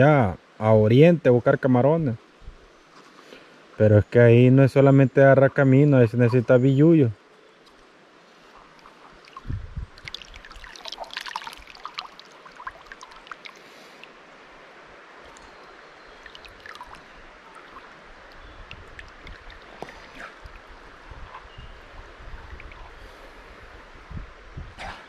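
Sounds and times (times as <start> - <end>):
river water running: 0.0 - 25.0
small splashes and drips: 7.6 - 21.2, 21.9 - 23.3.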